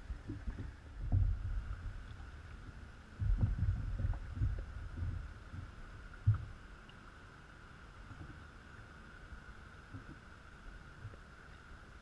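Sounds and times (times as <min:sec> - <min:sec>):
kayak thumps and knocks: 0:03.2 - 0:06.5.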